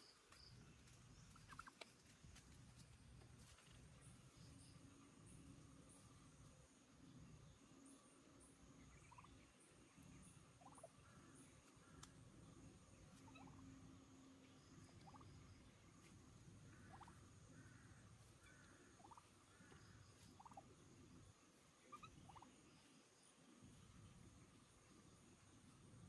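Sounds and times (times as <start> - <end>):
turkey calls: 0.0 - 2.8, 8.8 - 26.0.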